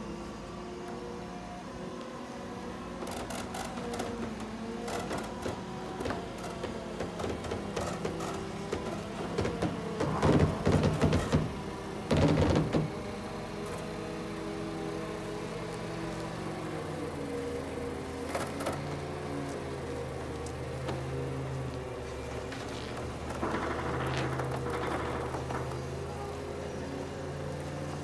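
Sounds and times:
engine hum: 0.0 - 28.0
machinery clicks and clanks: 3.0 - 14.0, 21.9 - 26.8.

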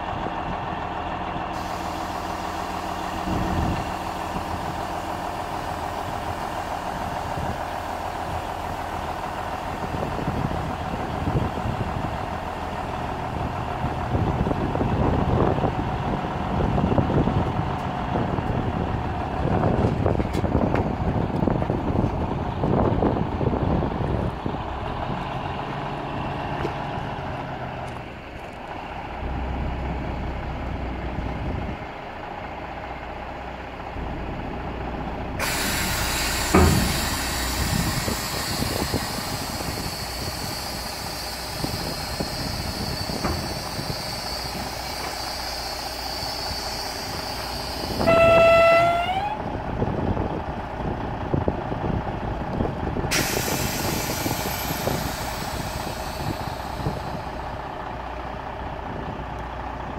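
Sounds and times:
diesel truck idling: 0.0 - 59.9
air hissing: 1.6 - 6.8, 35.4 - 48.8, 53.1 - 57.6
truck horn toot: 47.8 - 49.4.

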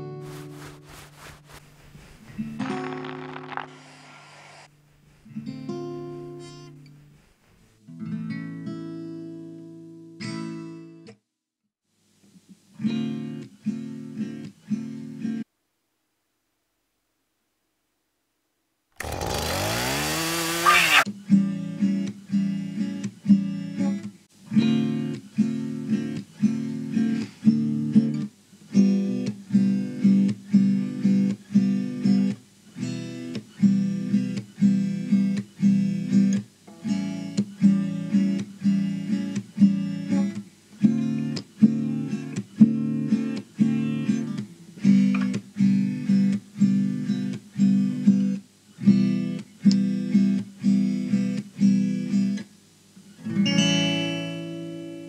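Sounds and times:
guitar strumming: 2.3 - 4.1.

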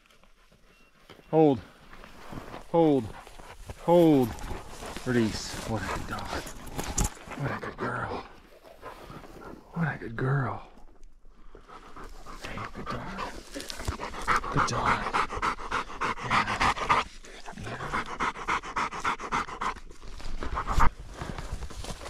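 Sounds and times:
dog panting: 3.0 - 9.7, 11.5 - 20.9.

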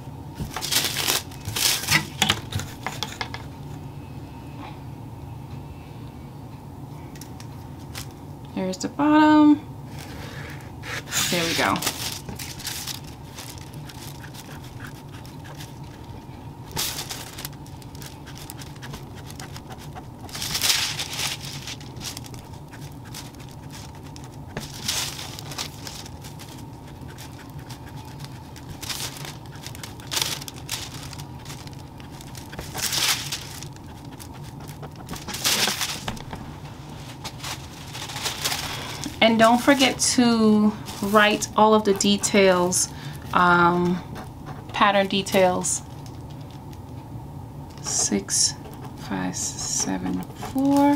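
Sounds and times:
steady low hum: 0.0 - 50.9
paper rustling and crinkling: 0.4 - 3.3, 11.2 - 40.1, 40.8 - 43.2, 48.6 - 50.9.

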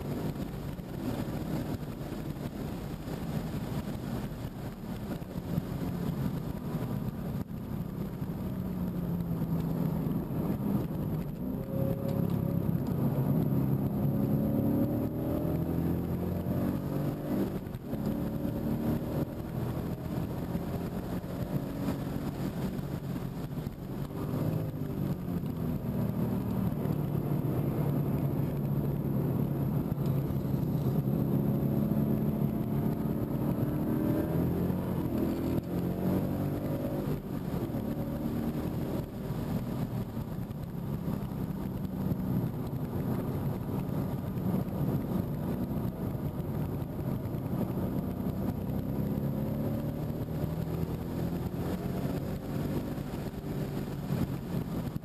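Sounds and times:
car engine revving from cabin: 9.4 - 23.2, 23.9 - 39.8, 47.5 - 54.9.

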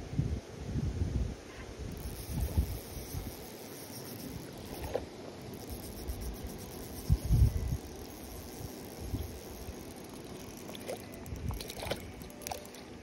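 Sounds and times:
steady background hiss: 0.0 - 13.0
fish splashing at water surface: 10.1 - 13.0.

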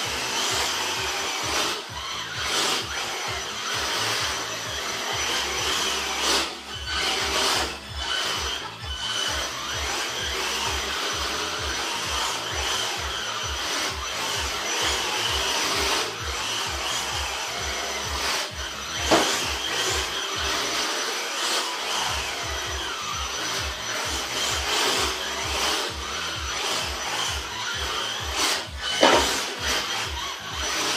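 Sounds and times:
toy car motor whine: 0.0 - 30.9
tyres scrubbing on carpet: 17.4 - 21.9, 22.7 - 30.9.

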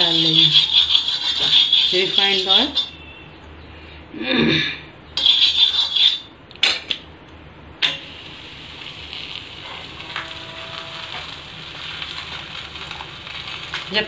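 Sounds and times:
oil sizzling under dough: 7.8 - 14.0.

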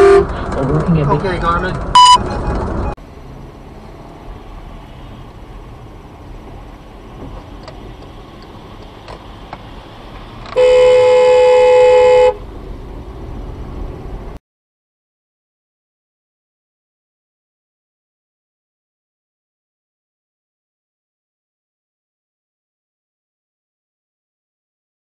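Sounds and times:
car horn blast: 0.0 - 0.3, 10.6 - 12.4
car road noise: 0.0 - 14.4.

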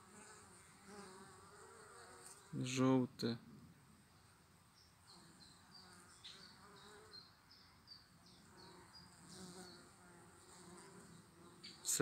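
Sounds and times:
honeybees buzzing: 0.0 - 2.6, 4.8 - 7.6, 8.2 - 12.0.

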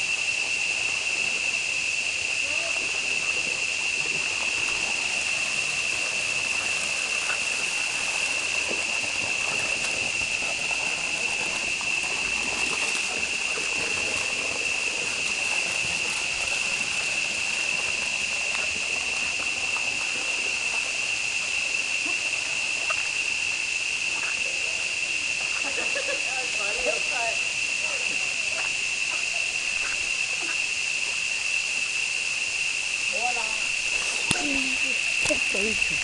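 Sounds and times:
faint hiss: 0.0 - 36.0
high-pitched insect chorus: 0.0 - 36.0.

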